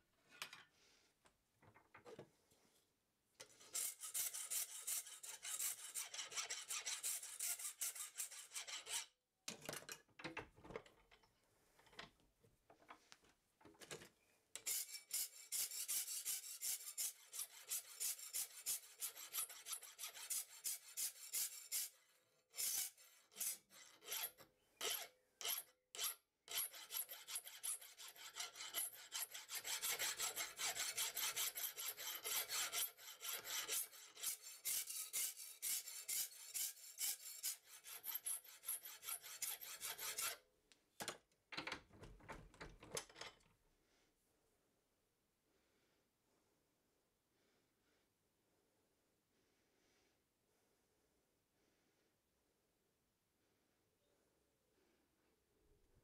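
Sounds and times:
file rasping on steel: 3.5s - 9.2s, 14.6s - 40.4s.

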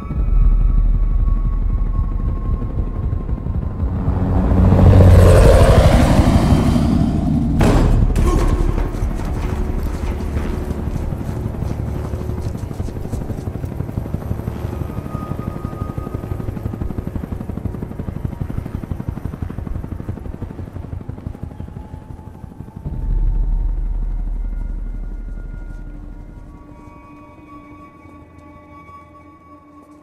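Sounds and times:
deep low swell: 0.0s - 17.7s, 22.6s - 28.3s
helicopter rotors chopping: 0.1s - 26.8s.

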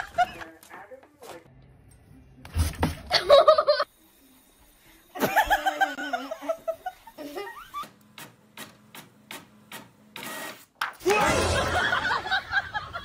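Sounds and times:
person laughing: 3.1s - 3.8s, 5.2s - 7.8s, 11.1s - 13.0s.

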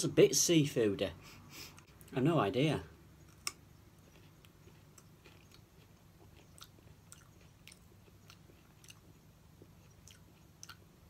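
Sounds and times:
low room hum: 0.0s - 11.0s
crisp chewing: 3.2s - 11.0s.

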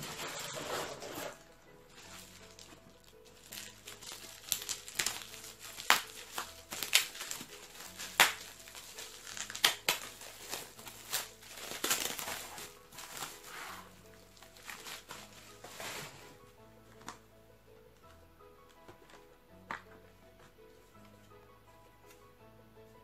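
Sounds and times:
bubble wrap crackling: 0.0s - 17.2s.

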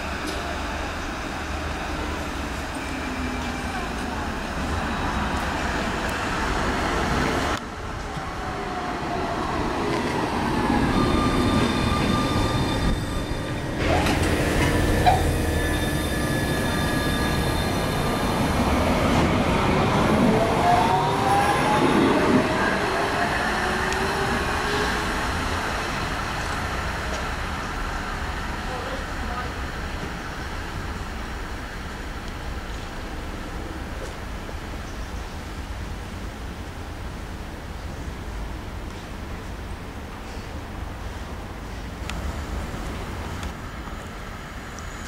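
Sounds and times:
wheels rumbling on track: 0.0s - 45.0s
tram motors whining: 1.9s - 27.8s
wheels squealing: 10.7s - 18.9s.

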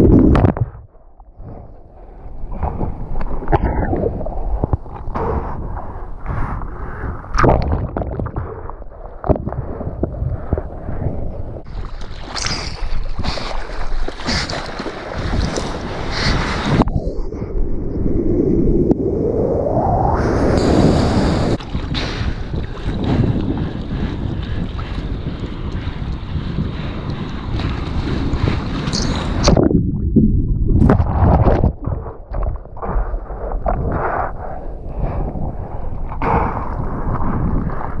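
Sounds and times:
wind on microphone: 0.0s - 38.0s
hands paddling through water: 11.6s - 16.7s.

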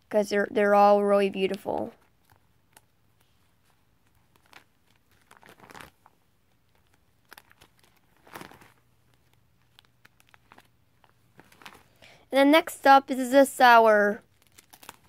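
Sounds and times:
plastic pages crinkling: 1.4s - 12.1s, 14.2s - 15.0s.

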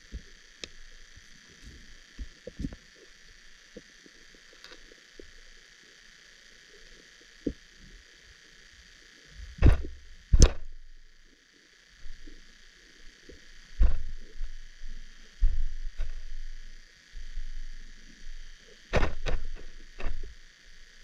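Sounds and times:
loud sharp thumps: 9.6s - 10.6s.

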